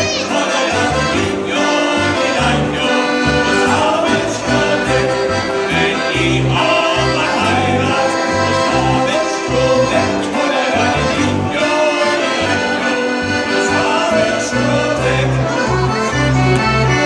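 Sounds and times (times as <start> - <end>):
accordion: 0.0 - 17.0
live folk band playing: 0.0 - 17.0
pulsing bass: 0.8 - 11.7, 12.4 - 17.0.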